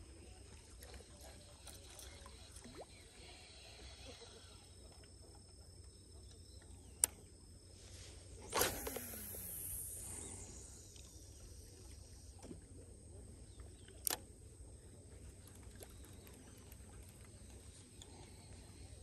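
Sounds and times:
fishing line hissing off reel: 0:07.0 - 0:12.4
fishing rod swish: 0:08.4 - 0:09.8
sharp click: 0:08.5 - 0:09.7, 0:13.8 - 0:14.2.

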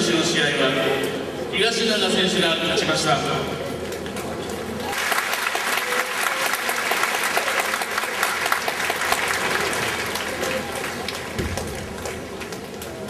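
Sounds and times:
large audience applauding: 0:04.7 - 0:13.0.

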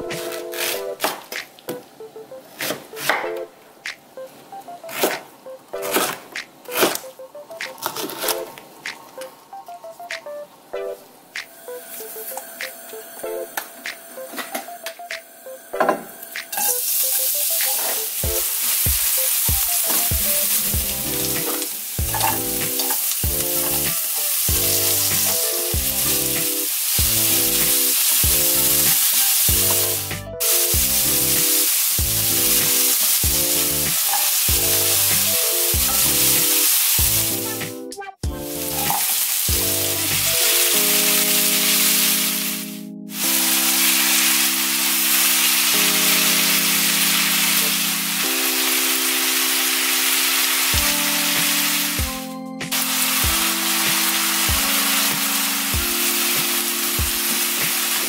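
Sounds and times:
background music with a beat: 0:05.8 - 0:07.8, 0:09.8 - 0:11.6, 0:12.6 - 0:15.3, 0:16.4 - 0:16.6, 0:17.4 - 0:42.1, 0:50.7 - 0:58.0
oil sizzling in a frying pan: 0:16.5 - 0:37.6, 0:38.4 - 0:52.0, 0:52.7 - 0:58.0.

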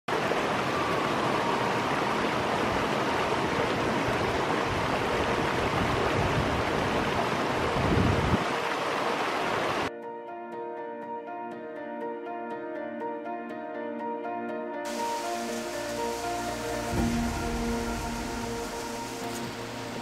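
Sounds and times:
river rushing over rocks: 0:00.1 - 0:09.9, 0:14.9 - 0:20.0.

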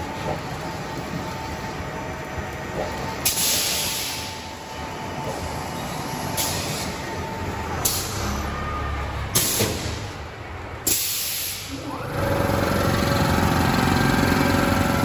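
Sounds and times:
air hiss bursts: 0:10.9 - 0:11.8
packaging machine rumbling: 0:11.8 - 0:15.0.

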